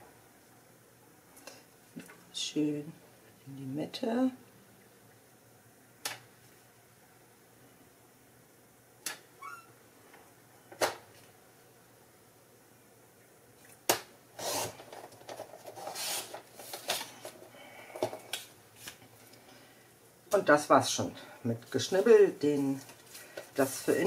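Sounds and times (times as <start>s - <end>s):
paper rustling: 14.8s - 17.4s
blade scraping paper: 15.7s - 17.1s.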